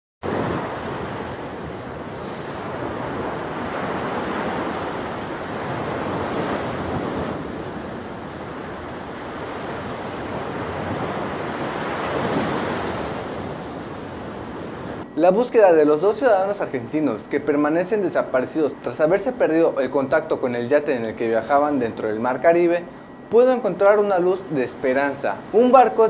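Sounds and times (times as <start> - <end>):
sea waves breaking on beach: 0.2 - 17.0.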